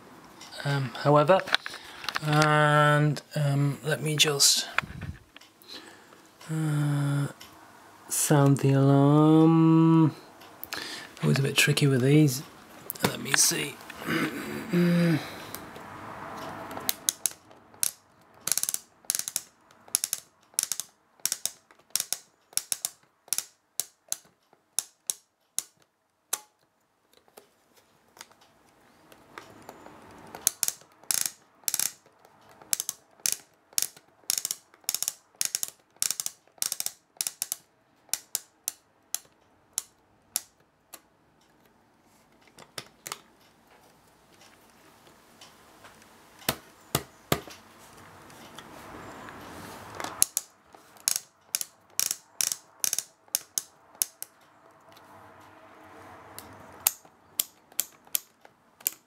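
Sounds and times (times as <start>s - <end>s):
alarm clock setting drum ratcheting: 16.8s - 25.7s, 29.6s - 40.6s, 50.1s - 54.4s.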